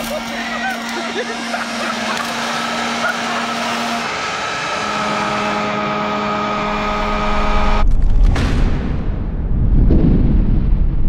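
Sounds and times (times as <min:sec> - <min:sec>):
burning steel wool sparks: 0:00.0 - 0:04.7
electric leaf blower whine: 0:00.0 - 0:07.8.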